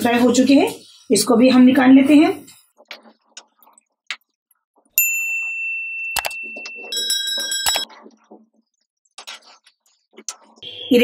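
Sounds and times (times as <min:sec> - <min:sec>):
bell-like ring: 0:05.0 - 0:07.8.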